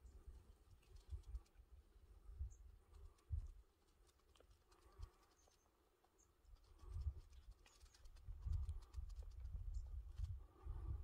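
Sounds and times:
wind gusting on microphone: 6.6 - 11.0.

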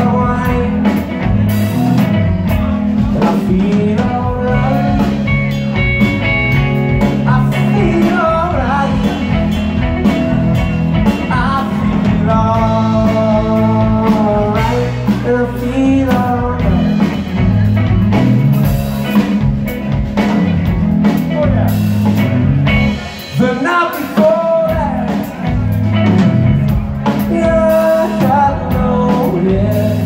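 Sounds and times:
electric guitar bending notes: 0.0 - 23.7
drum kit: 0.0 - 30.0.

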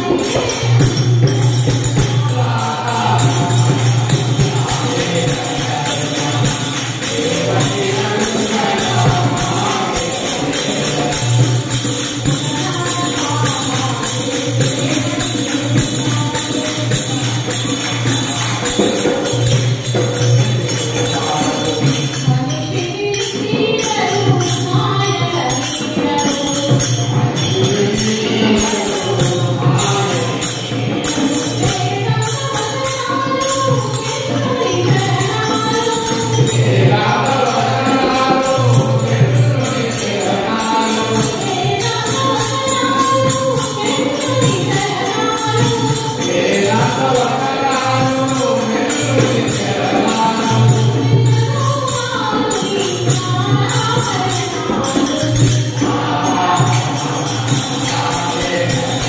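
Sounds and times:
woman singing into microphone: 0.0 - 19.5, 21.0 - 59.0
group of women singing: 0.0 - 59.0
percussion beat: 0.0 - 59.0.

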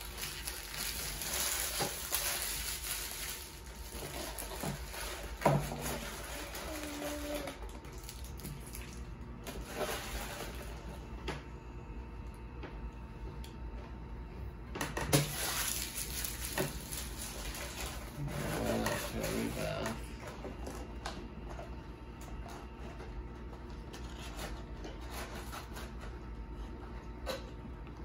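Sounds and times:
paper and wrapping rustling: 0.0 - 10.8, 15.2 - 20.6, 23.8 - 26.7
murmured voice: 18.2 - 20.3.

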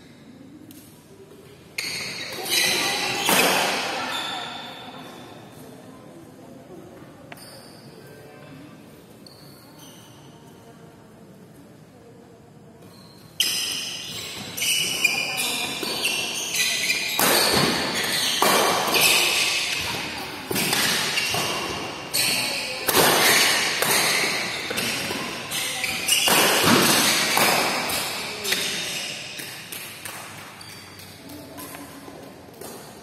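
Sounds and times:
rackets hitting shuttlecock: 1.9 - 4.0, 13.4 - 33.0.

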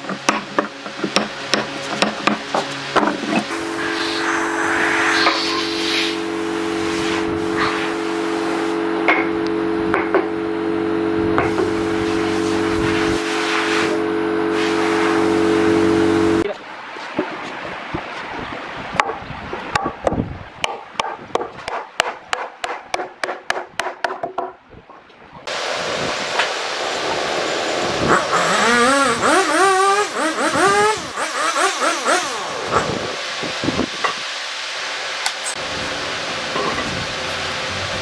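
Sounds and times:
steady hiss: 3.5 - 8.8
motor engine revving: 10.4 - 16.4, 26.2 - 33.2.

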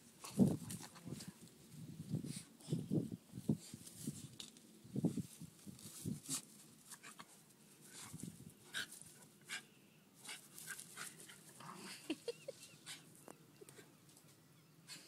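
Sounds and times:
dogs panting and scuffling: 5.1 - 15.0.

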